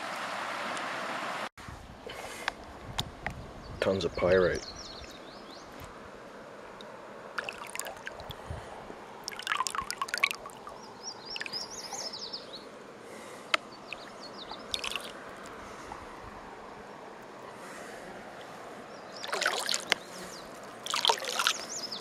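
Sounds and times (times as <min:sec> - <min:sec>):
water splashing: 0:07.3 - 0:08.5, 0:09.2 - 0:12.2, 0:13.8 - 0:16.0, 0:19.2 - 0:22.0
water sloshing in gold pan: 0:07.4 - 0:08.4, 0:09.2 - 0:11.6, 0:14.7 - 0:15.6, 0:19.2 - 0:20.0, 0:20.7 - 0:21.8.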